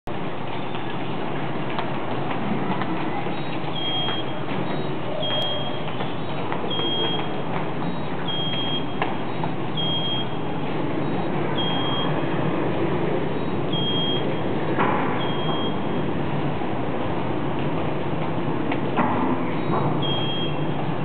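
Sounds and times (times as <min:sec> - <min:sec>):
card reader beeps: 0:03.4 - 0:12.2, 0:13.4 - 0:14.5, 0:15.2 - 0:16.1, 0:19.7 - 0:20.8.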